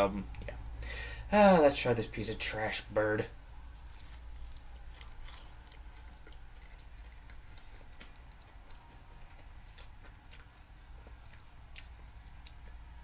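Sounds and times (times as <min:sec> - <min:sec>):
low steady hum: 0:00.0 - 0:13.0
person chewing: 0:03.7 - 0:12.7.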